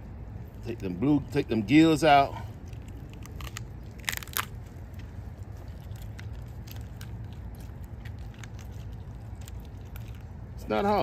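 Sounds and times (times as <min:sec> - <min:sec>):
wet crackles of fish gills torn: 0:02.6 - 0:10.5.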